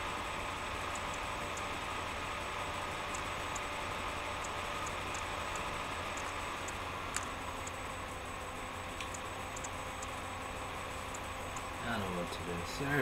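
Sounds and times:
low room hum: 0:00.0 - 0:13.0
faint high ticks: 0:00.9 - 0:01.7, 0:03.1 - 0:03.7, 0:04.4 - 0:07.8, 0:09.0 - 0:10.2
sharp click: 0:09.0 - 0:10.1.

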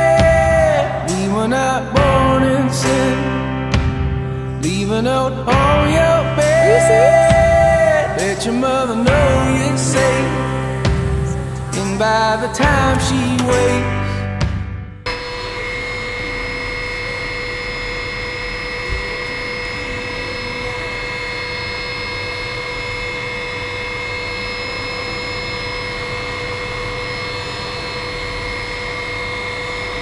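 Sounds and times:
helicopter engine and rotor whine: 0:15.1 - 0:30.0.

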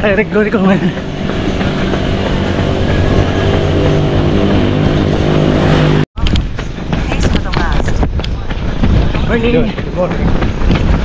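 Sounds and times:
vehicle engine droning: 0:00.0 - 0:06.1.

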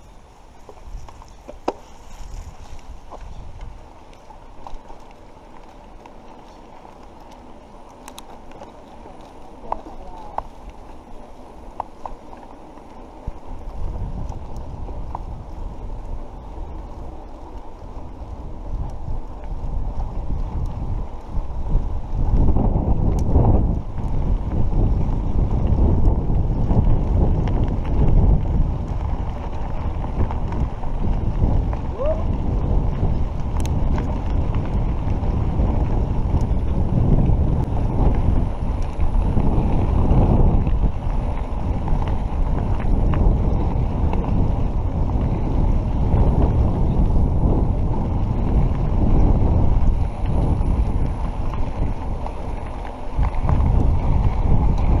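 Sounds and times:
bike rolling on dirt road: 0:00.0 - 0:55.0
wind buffeting microphone: 0:00.0 - 0:55.0.

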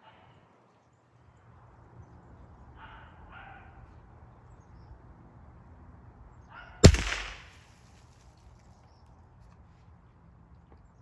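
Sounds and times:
rifle shot: 0:06.8 - 0:07.7.

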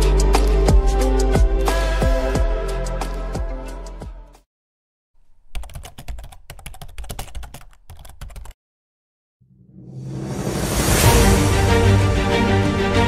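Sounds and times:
music: 0:00.0 - 0:04.5, 0:09.5 - 0:13.0
keyboard typing clicks: 0:05.5 - 0:08.6.

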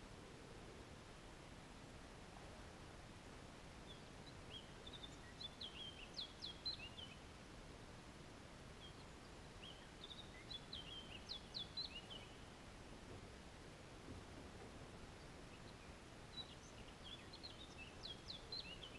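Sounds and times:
faint steady hiss: 0:00.0 - 0:18.9
songbird chirping: 0:03.3 - 0:07.4, 0:08.1 - 0:18.9.

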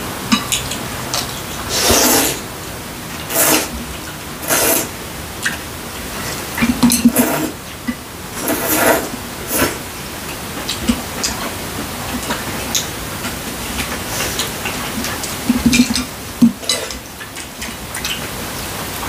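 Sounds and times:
noodles being slurped: 0:01.5 - 0:02.5, 0:03.2 - 0:05.0, 0:06.2 - 0:07.6, 0:08.4 - 0:09.9.

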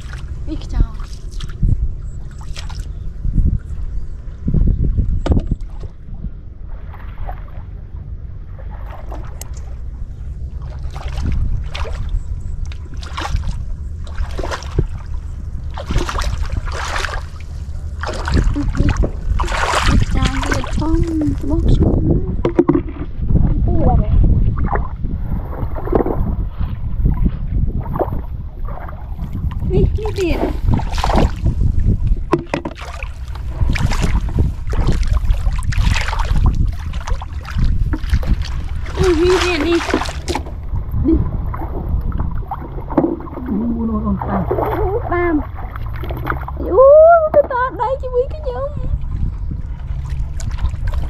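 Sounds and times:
bare feet splashing in water: 0:00.0 - 0:03.0, 0:08.5 - 0:21.8, 0:27.8 - 0:51.0
low rumble: 0:00.0 - 0:51.0.

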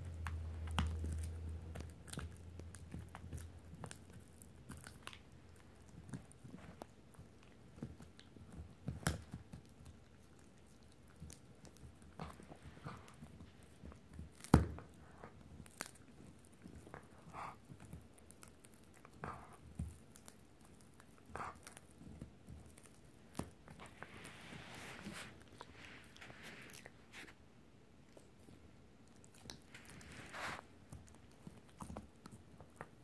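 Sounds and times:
dog chewing a bone: 0:00.0 - 0:27.4, 0:28.0 - 0:33.0
soft hiss: 0:22.8 - 0:31.2.

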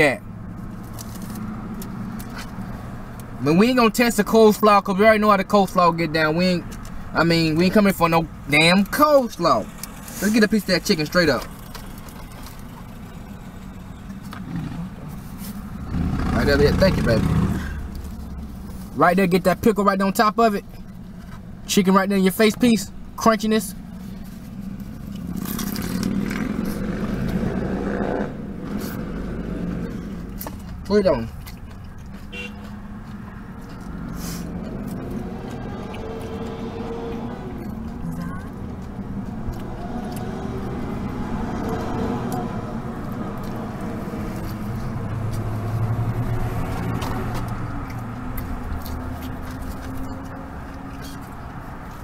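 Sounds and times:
car engine idling: 0:00.0 - 0:19.8
car engine idling hum: 0:00.0 - 0:52.0
crunching and chewing fried chicken: 0:24.8 - 0:27.4, 0:30.3 - 0:36.5, 0:47.1 - 0:52.0.

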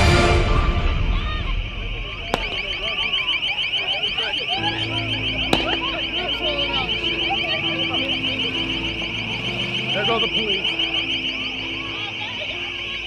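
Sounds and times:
sharp bangs: 0:00.0 - 0:07.2
crowd shouting: 0:00.0 - 0:13.0
pulsing electronic alarm tone: 0:00.0 - 0:13.0.

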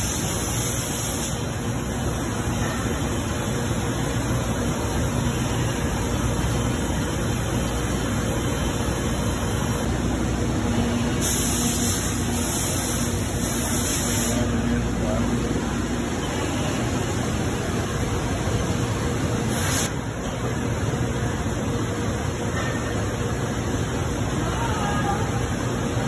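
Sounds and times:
coolant spray rushing: 0:11.2 - 0:14.5.

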